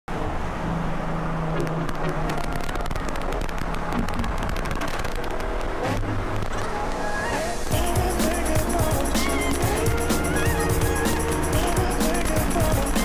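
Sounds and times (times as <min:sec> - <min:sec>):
car engine drone with crackling: 0:00.1 - 0:13.0
road and wind noise: 0:00.1 - 0:13.0.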